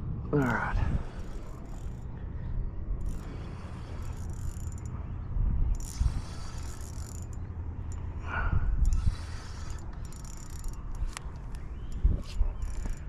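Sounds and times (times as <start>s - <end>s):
wind buffeting microphone: 0.0s - 13.0s
fishing reel being wound: 1.0s - 2.2s, 3.0s - 5.0s, 5.7s - 8.0s, 8.8s - 13.0s.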